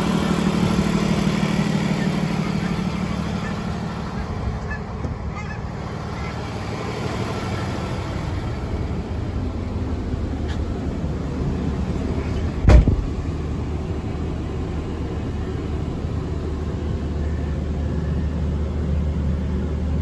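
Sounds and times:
diesel engine idling: 0.0 - 20.0
loud thump: 12.6 - 13.2.

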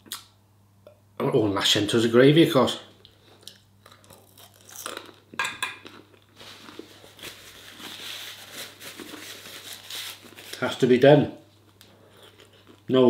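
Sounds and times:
person chewing chips: 3.4 - 10.6, 12.0 - 12.9
paper tissue rustling: 6.4 - 11.0.

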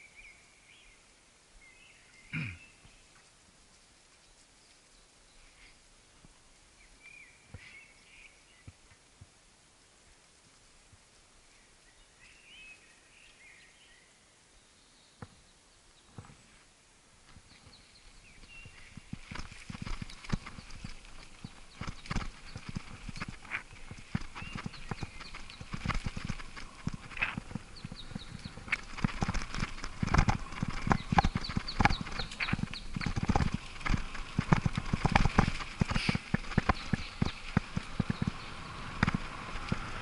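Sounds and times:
bicycle rattling on gravel trail: 17.3 - 40.0.

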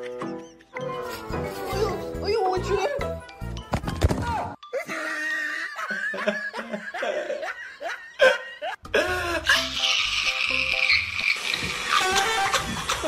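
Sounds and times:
person laughing: 4.8 - 9.9, 11.9 - 13.0.

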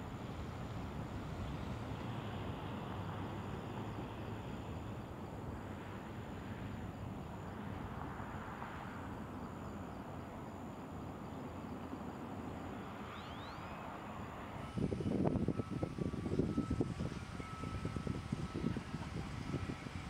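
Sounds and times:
low rumble of outdoor machinery: 0.0 - 20.0
faint high-pitched whine: 0.1 - 20.0
wind noise: 14.4 - 20.0.

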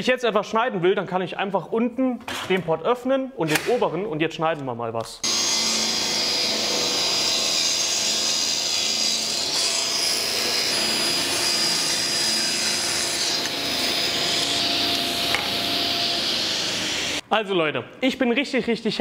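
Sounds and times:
table saw ripping wood: 5.2 - 17.2.

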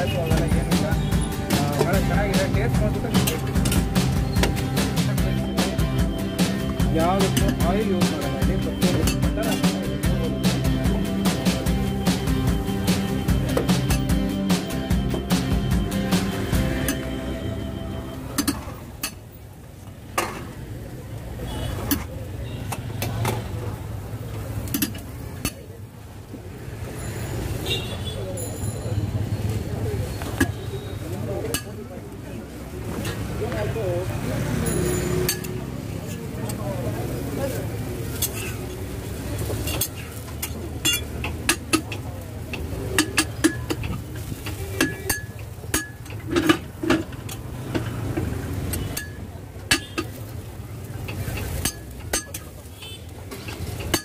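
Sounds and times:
metal spatula scraping on griddle: 38.1 - 38.8, 39.4 - 47.9
metal spatula scraping griddle: 38.2 - 38.8.

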